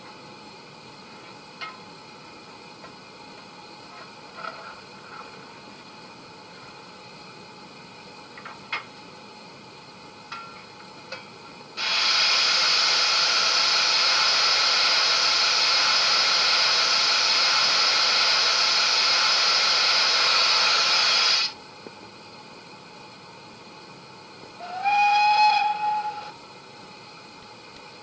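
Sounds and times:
loud steam hiss: 11.7s - 21.6s, 24.5s - 28.0s.

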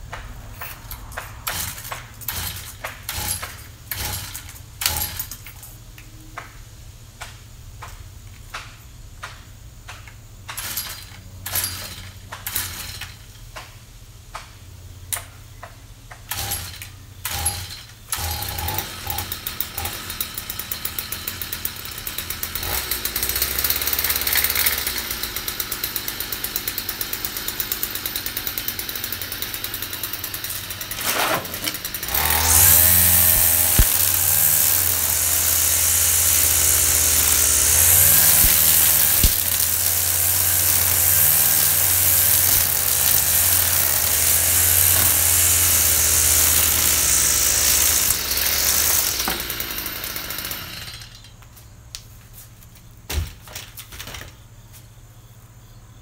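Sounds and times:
power tool running: 0.6s - 5.3s, 16.3s - 51.4s.

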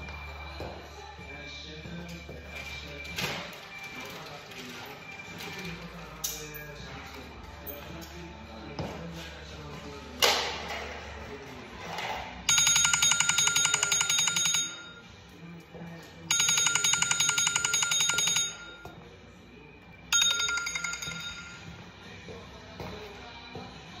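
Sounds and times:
telephone ringing: 12.5s - 15.2s, 16.3s - 19.0s, 20.1s - 22.0s.

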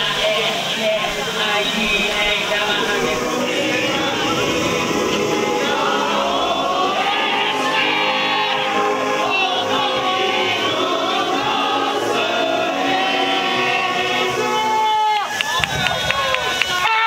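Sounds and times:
crowd singing a chant: 0.0s - 16.8s.

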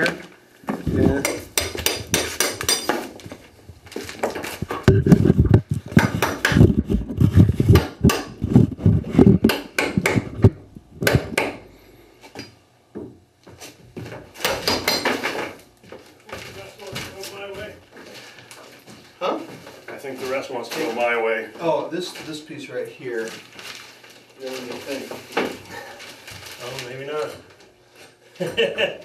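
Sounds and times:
hand tools knocking on wood: 0.7s - 3.4s, 4.2s - 11.6s, 12.9s - 17.7s
heavy thumps: 4.2s - 11.6s.

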